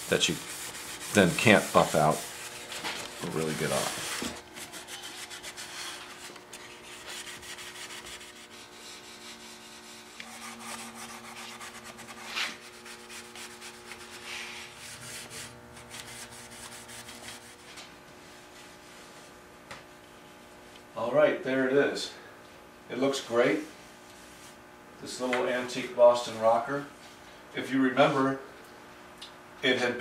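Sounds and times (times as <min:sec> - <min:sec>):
steel wool scrubbing wood: 0:00.0 - 0:17.7.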